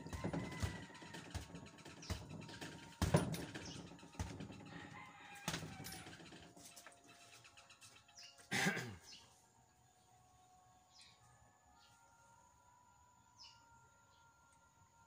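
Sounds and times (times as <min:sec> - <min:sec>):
rooster crow: 0:00.0 - 0:01.6, 0:04.7 - 0:06.3
fists striking punching bag: 0:00.0 - 0:04.6.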